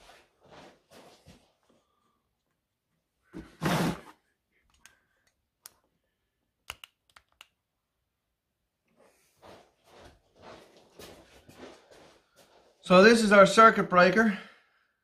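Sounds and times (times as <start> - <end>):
sharp clicks: 6.6 - 7.6.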